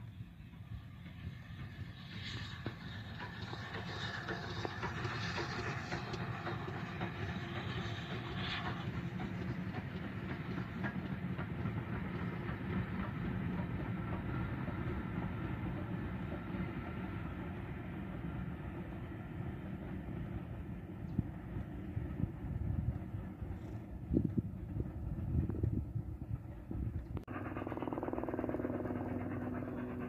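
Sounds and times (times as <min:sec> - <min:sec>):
distant train rumble: 0:00.0 - 0:30.0
steam hiss: 0:01.2 - 0:11.4.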